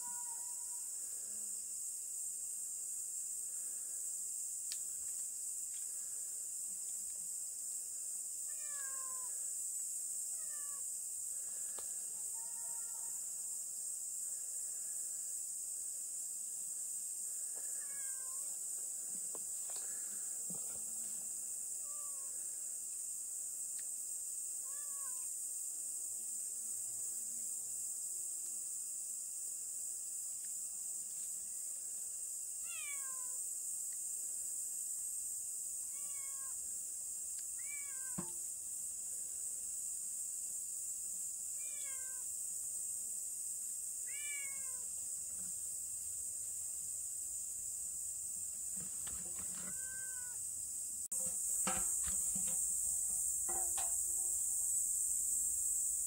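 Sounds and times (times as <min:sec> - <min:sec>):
cat meowing: 0:00.0 - 0:00.6, 0:08.5 - 0:09.3, 0:17.8 - 0:18.4, 0:21.8 - 0:22.3, 0:24.7 - 0:25.3, 0:32.6 - 0:33.4, 0:35.9 - 0:36.6, 0:37.6 - 0:38.2, 0:41.6 - 0:42.2, 0:44.1 - 0:44.8, 0:49.7 - 0:50.4
insects hissing: 0:00.0 - 0:56.0.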